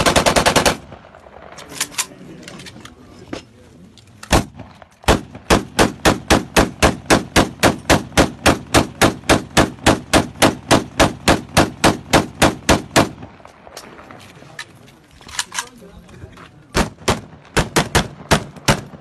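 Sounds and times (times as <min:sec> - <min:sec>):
rifle firing rapid single shots: 0:00.0 - 0:02.2, 0:04.3 - 0:14.1, 0:16.7 - 0:19.0.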